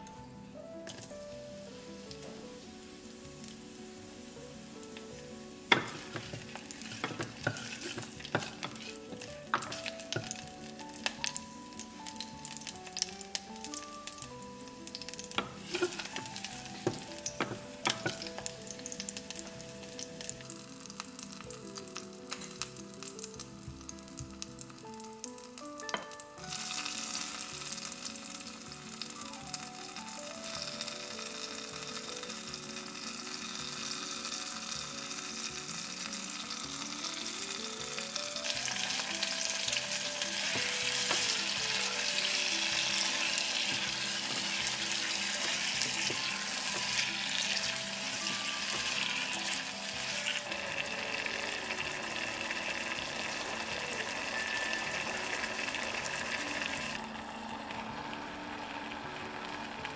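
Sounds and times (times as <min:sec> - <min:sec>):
food sizzling in a pot: 0:00.0 - 0:59.9
soft background music: 0:00.0 - 0:59.9
wooden utensil stirring: 0:05.7 - 0:11.4, 0:15.3 - 0:18.5, 0:38.8 - 0:52.2.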